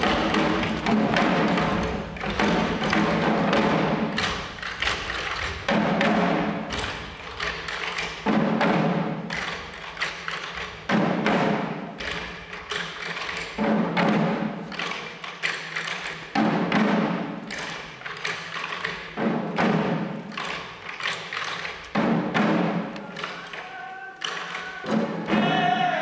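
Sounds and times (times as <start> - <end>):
drums beaten fast: 0.0 - 12.6, 13.5 - 14.6, 16.3 - 17.4, 21.9 - 26.0.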